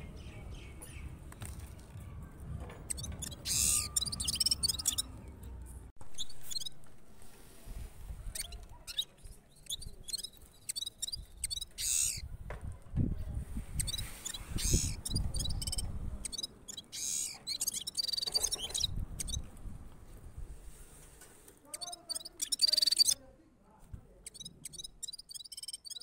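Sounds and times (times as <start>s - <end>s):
finch singing: 2.8s - 5.3s, 8.2s - 12.2s, 13.8s - 19.4s, 21.7s - 23.2s, 24.2s - 26.0s.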